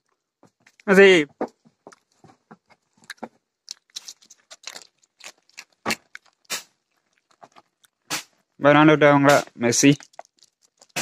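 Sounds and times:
goat crunching chips: 0:02.8 - 0:08.6, 0:09.7 - 0:11.0.

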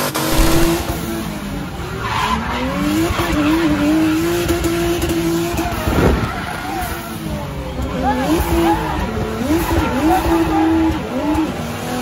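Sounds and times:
car engine at high revs: 0:00.3 - 0:00.8.

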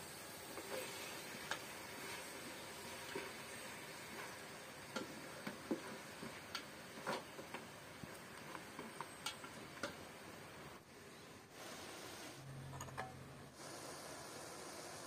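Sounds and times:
spoon stirring in a pot: 0:00.5 - 0:10.0.

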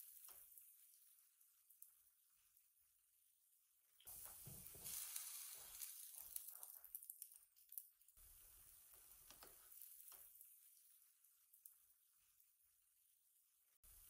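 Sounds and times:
batter sizzling on griddle: 0:00.0 - 0:02.0, 0:04.1 - 0:12.4.

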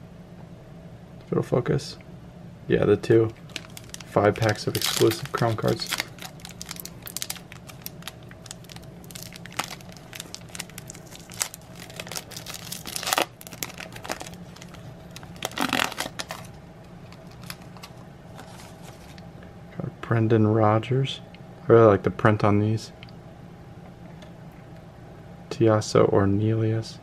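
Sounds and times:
foil wrapper crinkling: 0:03.4 - 0:19.2
foil wrapper ripping: 0:03.4 - 0:19.2.

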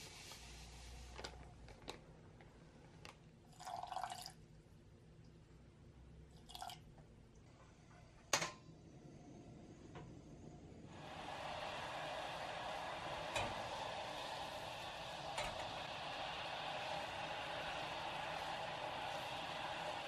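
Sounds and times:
water pouring into a saucepan: 0:03.5 - 0:04.4, 0:06.4 - 0:06.9, 0:10.9 - 0:20.0.

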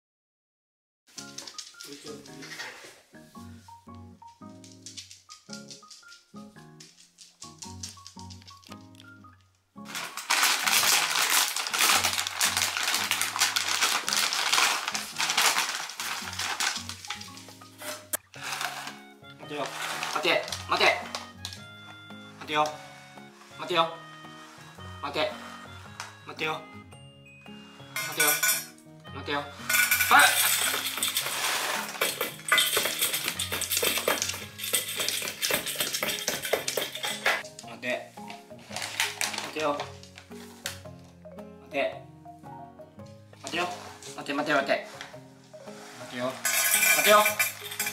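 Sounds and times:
light background music: 0:01.1 - 0:47.9
kibble rattling in plastic bag: 0:09.9 - 0:17.8, 0:18.4 - 0:21.4, 0:29.7 - 0:37.4, 0:38.6 - 0:40.2, 0:46.3 - 0:47.9.

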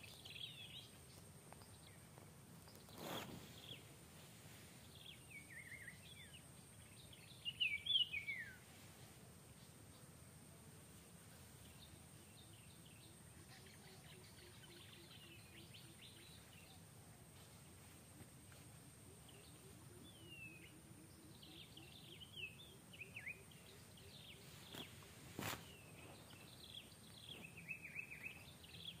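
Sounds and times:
birds chirping and whistling: 0:02.7 - 0:03.9, 0:04.9 - 0:08.6, 0:19.2 - 0:29.0.

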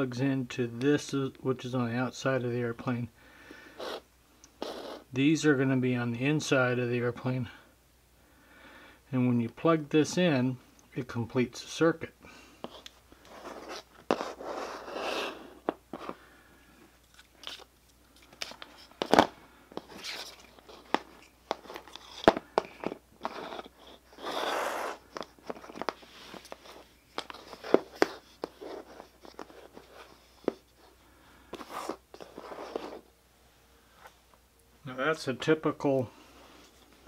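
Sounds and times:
clicks taps and rustles: 0:25.1 - 0:29.8.

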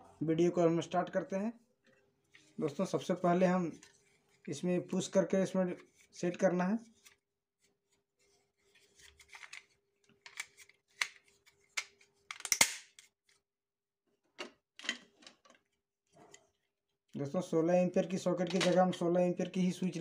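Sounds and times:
plastic clicks and rattles: 0:09.2 - 0:13.1, 0:14.4 - 0:15.6, 0:18.4 - 0:18.9
plastic snapping in: 0:12.3 - 0:13.0.

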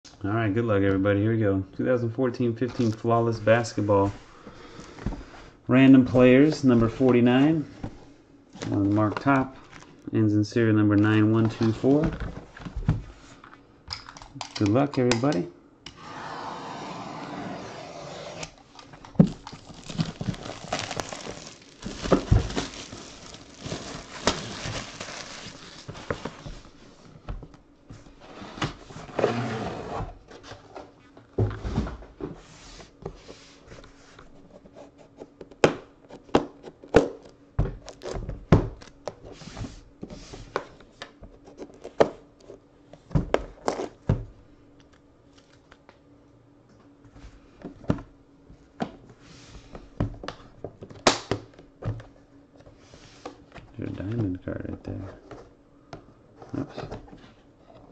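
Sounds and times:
plastic wrap tearing and crinkling: 0:19.2 - 0:26.2.

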